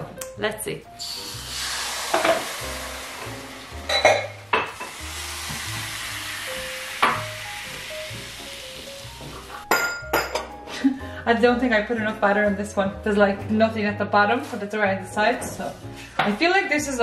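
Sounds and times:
batter sizzling in hot pan: 0:01.0 - 0:09.6.

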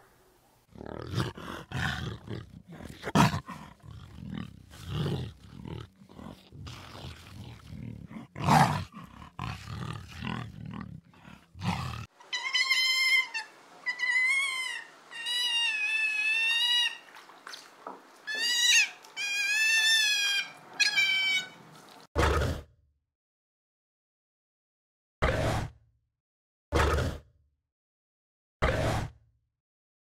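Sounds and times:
leopard grunting: 0:00.7 - 0:12.1
animal high-pitched squeals: 0:11.2 - 0:17.1, 0:18.3 - 0:21.6.

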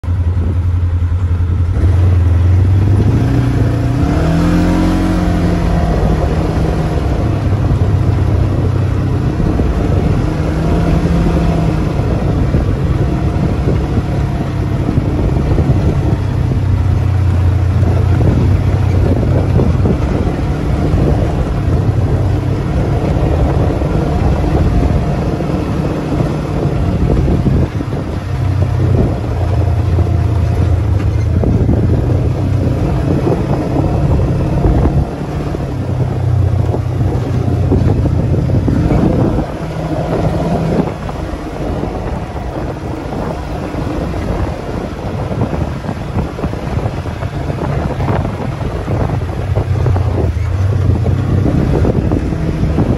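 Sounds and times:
vehicle engine driving on dirt: 0:00.0 - 0:52.9.

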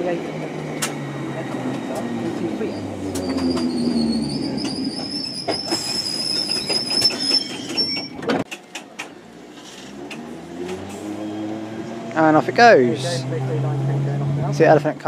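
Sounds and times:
low train rumble: 0:00.0 - 0:08.4
wheels clicking over rail joints: 0:00.5 - 0:11.0
train wheel squeal: 0:01.4 - 0:08.2.

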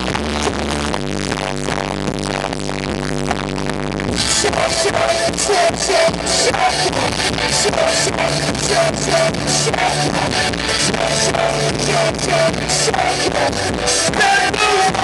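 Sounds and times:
fast drum beat: 0:04.1 - 0:15.0
live pop-rock band: 0:04.1 - 0:15.0.

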